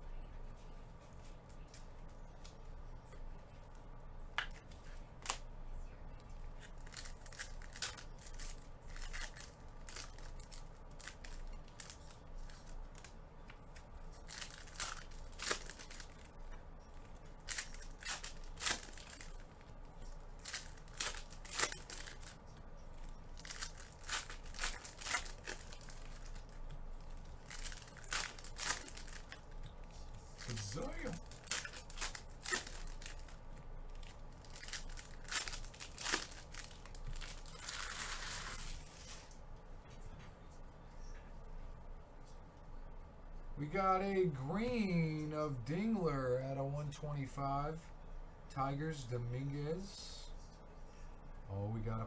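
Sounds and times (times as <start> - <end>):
foil packs tearing and crinkling: 14.2 - 16.3, 17.4 - 19.4, 20.4 - 22.4, 23.4 - 26.5, 27.4 - 29.4, 30.4 - 33.4, 34.0 - 39.2.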